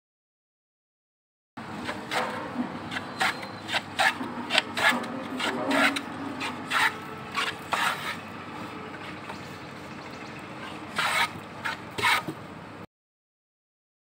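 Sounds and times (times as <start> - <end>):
bench plane shaving wood: 2.9 - 8.2, 10.7 - 12.4.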